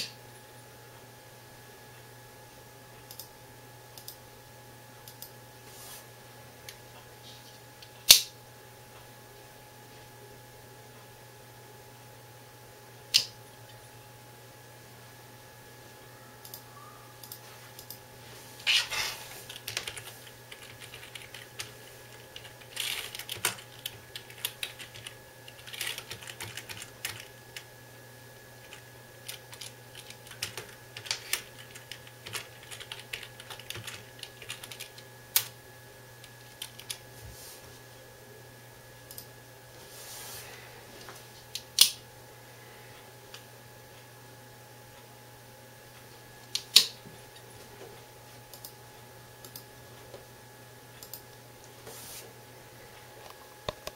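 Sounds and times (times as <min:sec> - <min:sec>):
faint steady hum: 0:00.0 - 0:53.9.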